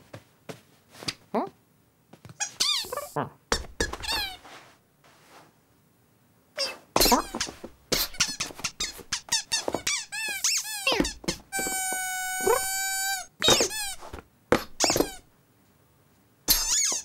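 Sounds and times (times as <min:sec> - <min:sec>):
cartoon kitten mews: 0:11.9 - 0:13.3.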